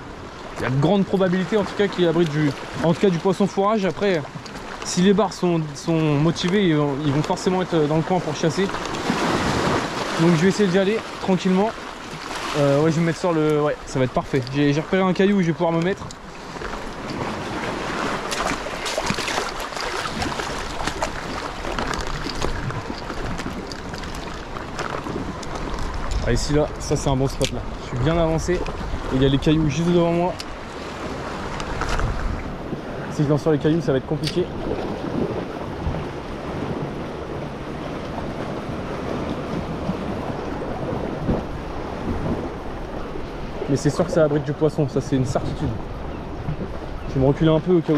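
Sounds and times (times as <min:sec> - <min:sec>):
sea water washing over rocks: 0:00.0 - 0:47.0
wind buffeting microphone: 0:07.6 - 0:47.9
footsteps on rough rock: 0:18.0 - 0:26.4.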